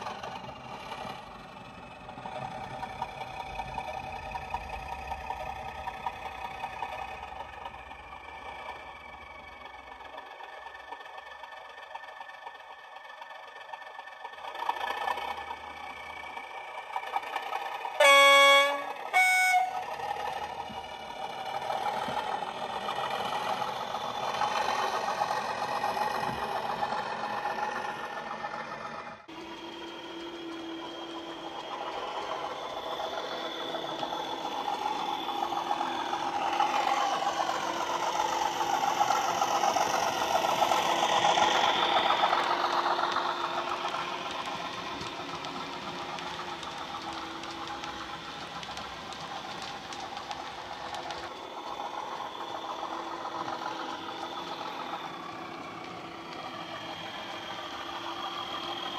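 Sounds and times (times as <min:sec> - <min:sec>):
simulated diesel engine: 0:00.0 - 0:58.9
two-tone train horn: 0:18.0 - 0:20.3.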